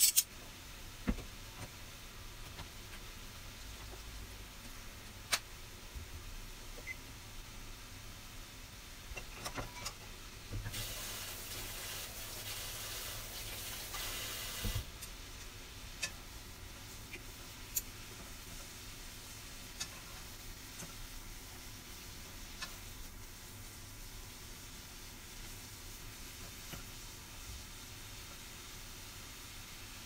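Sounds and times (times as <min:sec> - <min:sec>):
steady hiss: 0:10.0 - 0:30.0.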